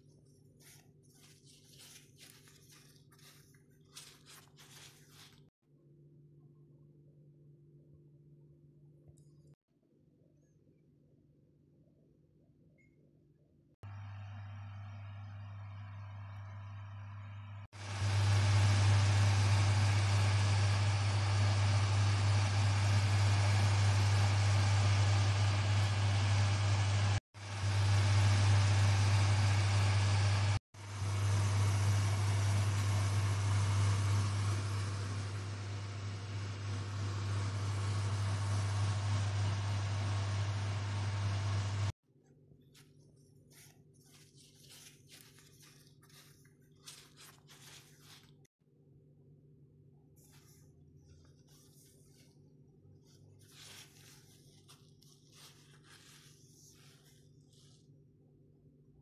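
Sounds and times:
flatbread rustling and crinkling: 0:00.0 - 0:05.6, 0:42.6 - 0:48.5, 0:50.2 - 0:58.2.

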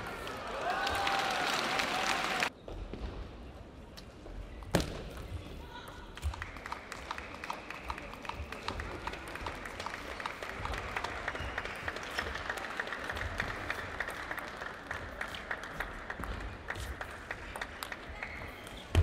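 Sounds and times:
people clapping: 0:00.0 - 0:02.5, 0:05.7 - 0:18.9
crowd noise: 0:00.0 - 0:03.9, 0:06.7 - 0:19.0.

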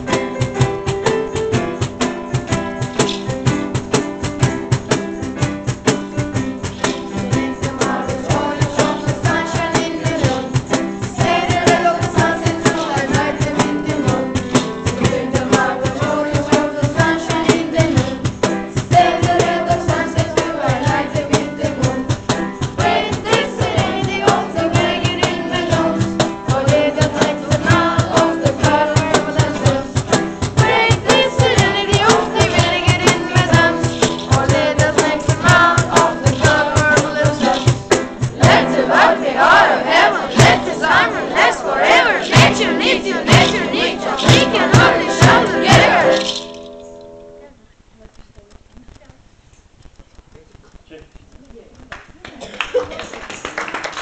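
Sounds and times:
instrumental accompaniment with fast beat: 0:00.0 - 0:47.6
voices singing: 0:06.7 - 0:46.4.

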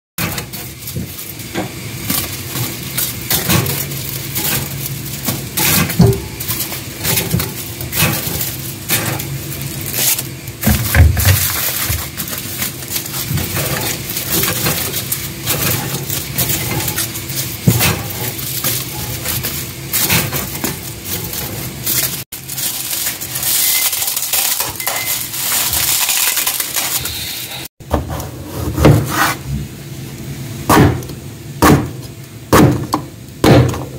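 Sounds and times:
dry seaweed sheets crackling: 0:00.5 - 0:27.7
knife chopping on plastic board: 0:30.7 - 0:33.8.

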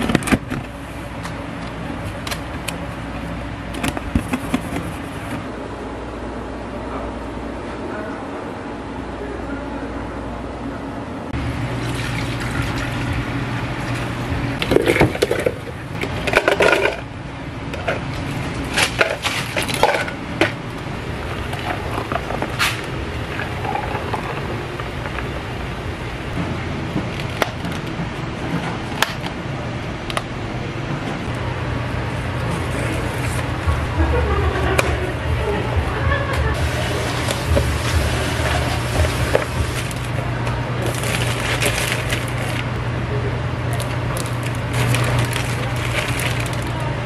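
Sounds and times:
steady low hum: 0:00.0 - 0:47.0
ice in plastic cups: 0:36.6 - 0:40.2, 0:40.8 - 0:42.7, 0:43.8 - 0:46.9.

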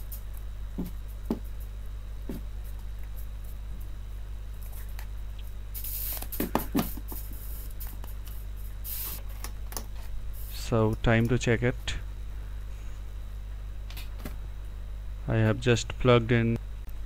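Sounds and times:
steady low hum: 0:00.0 - 0:17.0
rubbing hiss: 0:05.8 - 0:07.8, 0:08.8 - 0:09.2.

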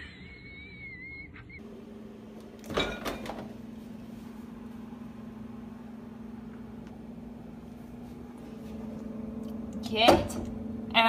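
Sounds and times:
low hum: 0:01.6 - 0:11.0
refrigerator door opening: 0:02.5 - 0:03.6.

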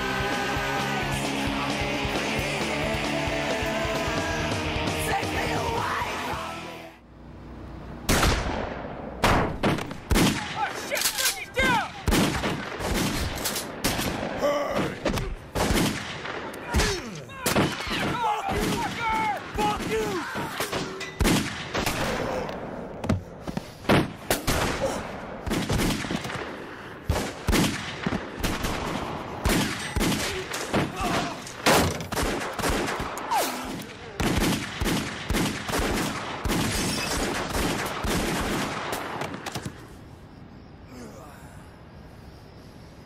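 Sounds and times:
people shouting: 0:03.2 - 0:06.8, 0:10.4 - 0:12.1, 0:16.6 - 0:20.8, 0:30.2 - 0:31.5
gunshots in rapid volleys: 0:08.0 - 0:40.0.

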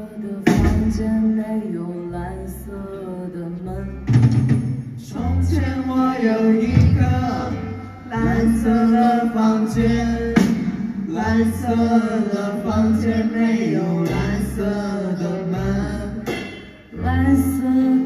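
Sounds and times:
repeating bass line: 0:03.6 - 0:18.0.

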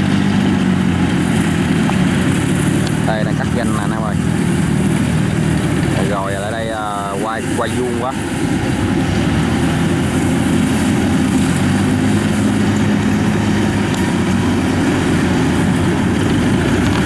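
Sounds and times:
combine harvester engine droning: 0:00.0 - 0:17.0.

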